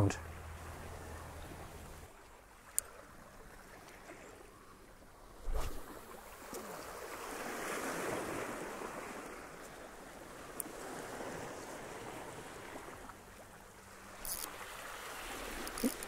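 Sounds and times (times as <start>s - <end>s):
small waves washing against rocks: 5.4s - 16.0s.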